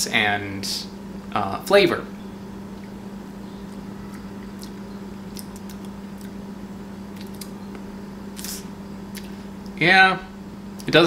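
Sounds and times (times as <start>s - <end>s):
steady low hum: 0.0s - 11.0s
wet mouth clicks and lip smacks: 4.6s - 6.4s, 7.2s - 7.6s.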